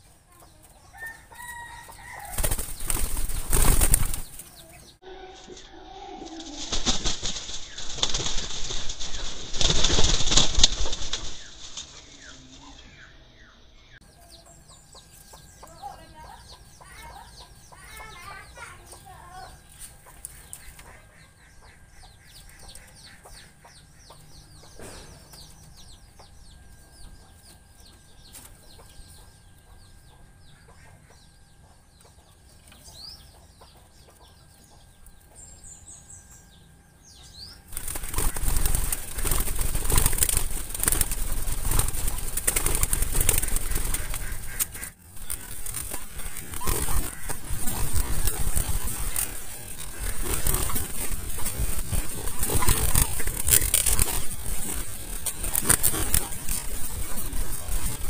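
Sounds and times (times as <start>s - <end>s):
faint bird chirps: 0.0s - 6.8s, 10.9s - 58.0s
dove flapping wings in cage: 1.4s - 4.5s, 6.3s - 12.0s, 37.7s - 58.0s.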